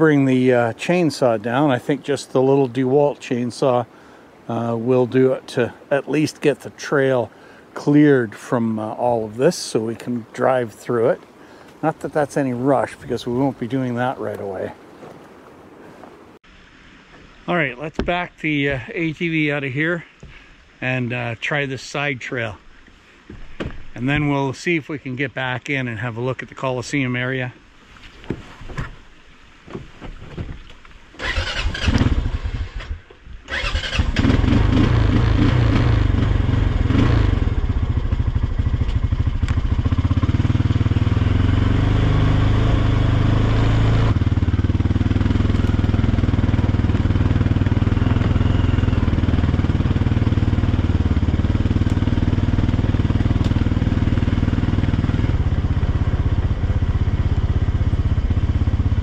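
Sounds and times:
engine cranking: 31.2s - 35.0s
quad engine running: 33.5s - 59.0s.

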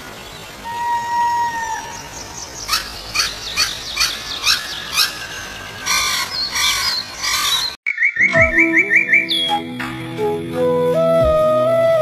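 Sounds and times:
harsh bird calls: 0.4s - 9.6s
bird chirps: 2.0s - 9.9s.

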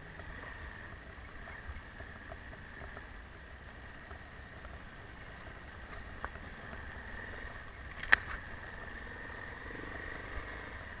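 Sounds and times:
muffled motorcycle engine running: 0.0s - 11.0s.

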